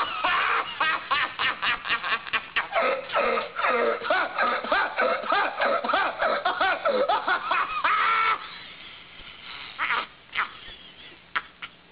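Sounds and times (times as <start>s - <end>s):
high-pitched voice laughing: 0.0s - 8.4s.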